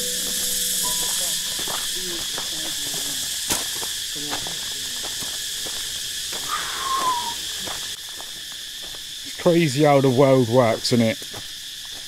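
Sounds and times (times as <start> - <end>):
insects droning: 0.0 - 12.0
short falling whistle: 6.5 - 7.4.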